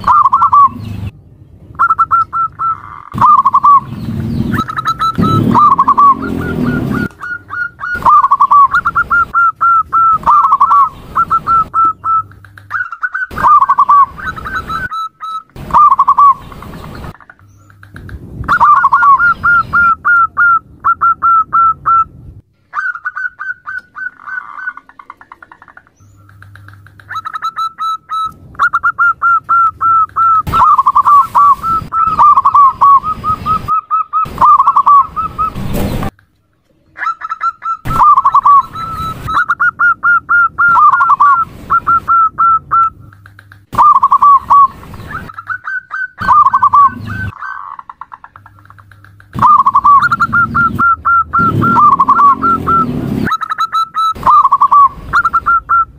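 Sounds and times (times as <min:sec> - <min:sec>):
dove cooing: 0:00.0 - 0:01.1, 0:01.8 - 0:22.1, 0:22.7 - 0:35.7, 0:37.0 - 0:55.9.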